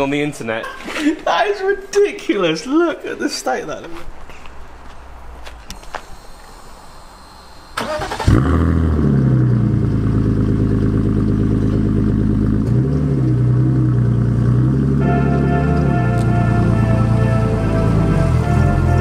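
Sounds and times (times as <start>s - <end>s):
car engine idling: 6.1s - 19.0s
engine revving: 7.3s - 19.0s
car engine cranking on starter: 7.6s - 13.0s.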